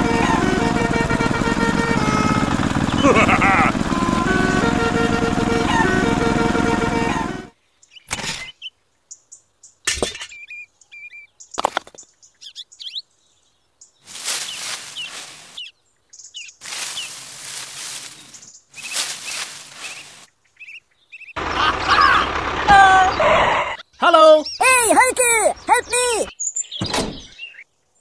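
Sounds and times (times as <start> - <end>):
small birds chirping: 2.0 - 5.0, 7.2 - 28.0
cardboard debris rustling and crunching: 14.1 - 15.6, 16.6 - 20.2.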